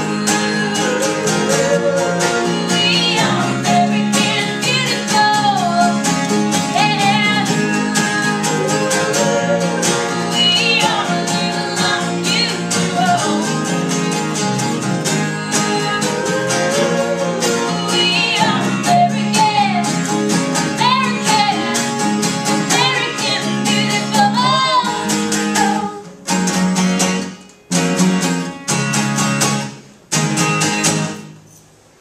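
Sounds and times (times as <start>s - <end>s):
woman singing: 0.0s - 22.0s, 22.6s - 26.2s
strummed acoustic guitars: 0.0s - 32.0s.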